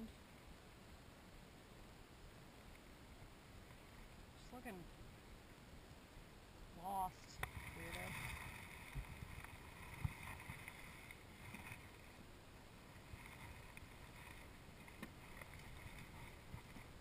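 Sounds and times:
steady light hiss: 0.0s - 17.0s
wind rumble on microphone: 7.3s - 11.9s.

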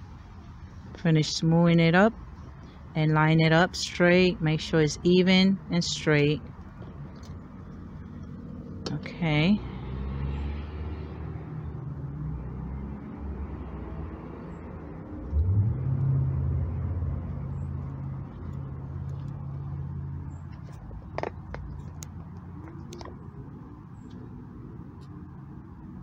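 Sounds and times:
vehicle engine revving: 7.6s - 23.6s.

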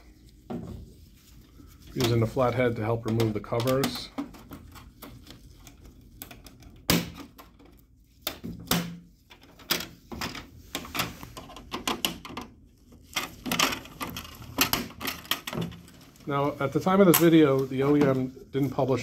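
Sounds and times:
plastic covers clicking and snapping: 2.0s - 16.3s.

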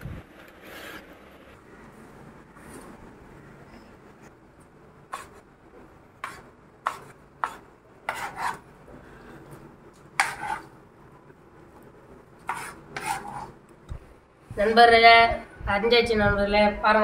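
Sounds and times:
knife scraping board: 6.2s - 8.6s, 10.2s - 10.7s, 12.5s - 13.6s.

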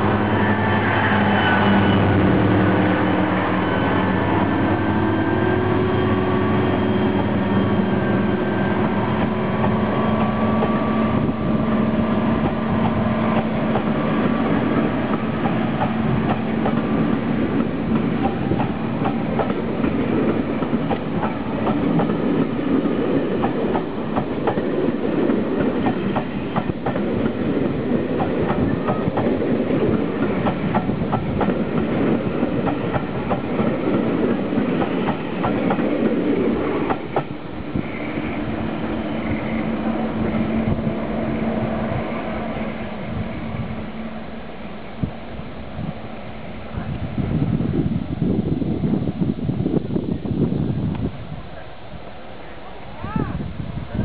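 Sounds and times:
diesel locomotive engine: 0.0s - 54.0s
train wheels clattering over rail joints: 25.4s - 27.4s.

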